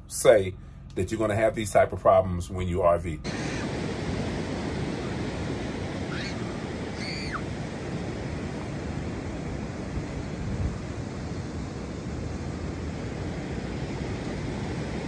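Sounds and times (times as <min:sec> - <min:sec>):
bird gliding calls: 0:03.2 - 0:03.8, 0:06.0 - 0:07.6
ocean surf rushing: 0:03.2 - 0:15.0
wind noise: 0:03.2 - 0:15.0.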